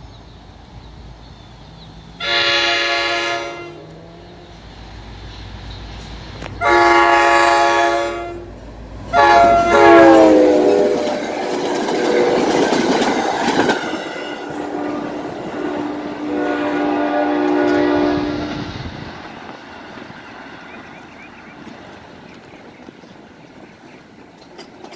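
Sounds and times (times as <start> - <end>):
train cars rushing and clattering: 0.0 - 24.9
train air horn blasts: 2.2 - 4.2, 6.6 - 8.5, 9.1 - 12.8, 13.7 - 19.0.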